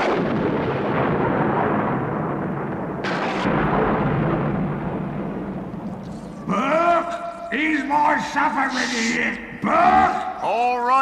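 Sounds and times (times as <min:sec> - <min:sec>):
sharp thunder crash: 0:00.0 - 0:06.0
thunder rumbling: 0:00.0 - 0:07.6.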